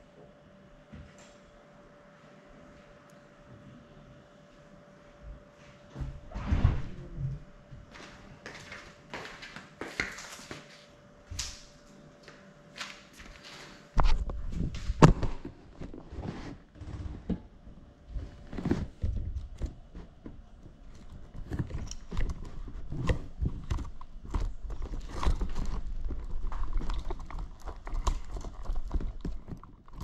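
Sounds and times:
low rumble: 6.2 - 7.6.

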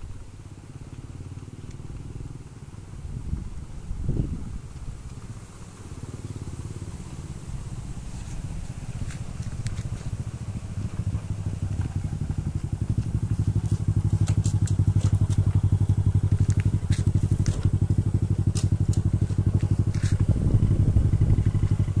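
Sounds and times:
motorcycle engine puttering: 0.0 - 22.0.

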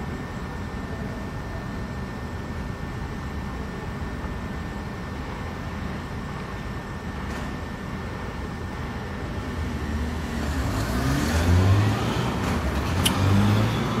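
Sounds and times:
vehicle engine rumble: 7.5 - 14.0
sharp click: 13.0 - 13.3.

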